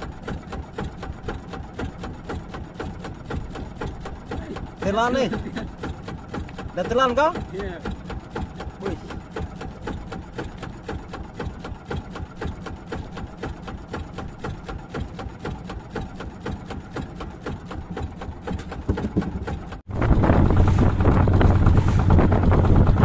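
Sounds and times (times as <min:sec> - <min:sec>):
louder engine: 0:00.0 - 0:23.0
small boat engine puttering: 0:00.0 - 0:23.0
wind on microphone: 0:19.9 - 0:23.0.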